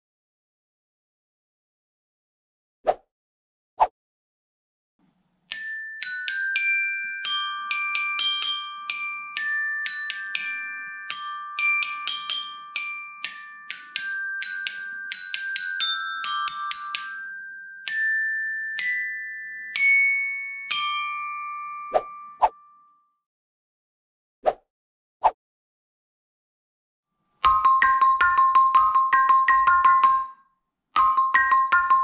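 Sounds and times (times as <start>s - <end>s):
glockenspiel melody: 5.5s - 23.2s, 27.4s - 32.0s.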